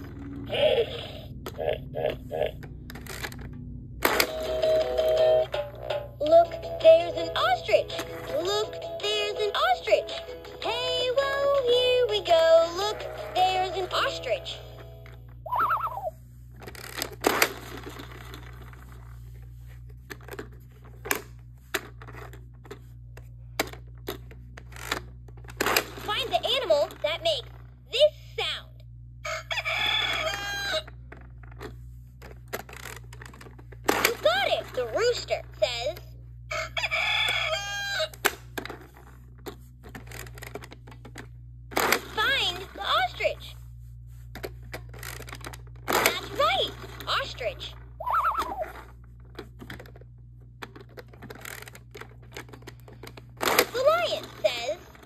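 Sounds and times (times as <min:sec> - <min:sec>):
faint low hum: 0:00.0 - 0:55.0
electronic toy rooster crow: 0:15.5 - 0:16.1, 0:29.2 - 0:30.9, 0:36.5 - 0:38.2, 0:48.0 - 0:48.8
plastic toy pieces clicking: 0:50.6 - 0:55.0.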